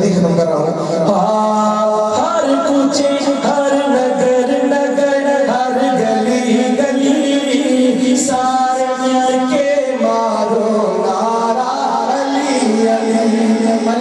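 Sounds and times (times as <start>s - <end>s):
man singing through microphone: 0.0s - 14.0s.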